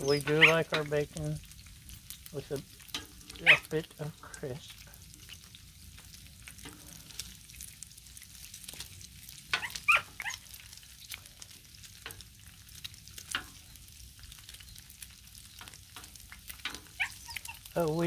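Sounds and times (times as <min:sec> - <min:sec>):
bacon sizzling and popping: 0:00.0 - 0:18.0
dog crying: 0:00.2 - 0:00.7, 0:03.4 - 0:03.7, 0:09.6 - 0:10.5, 0:16.9 - 0:17.7.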